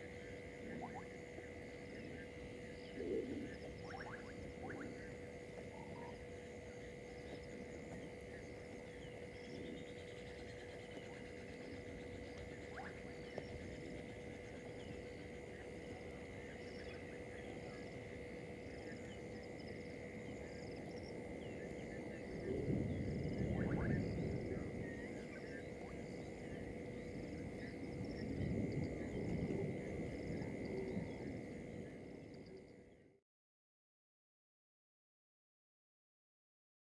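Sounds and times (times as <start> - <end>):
high repeating frog call: 0.7 - 1.4, 2.7 - 6.2, 10.2 - 17.0
frogs calling in chorus: 2.0 - 6.9, 9.4 - 15.8.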